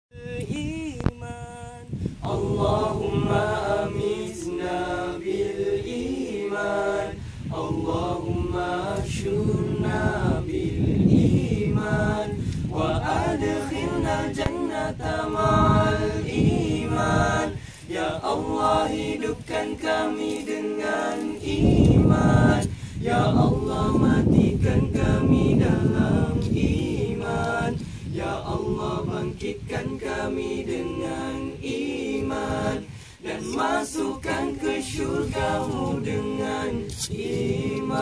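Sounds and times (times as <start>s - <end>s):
men singing a cappella: 0.1s - 38.0s.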